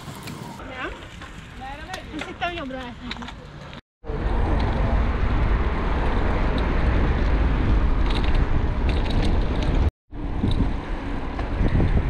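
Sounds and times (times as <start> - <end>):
wind buffeting microphone: 4.2 - 12.0.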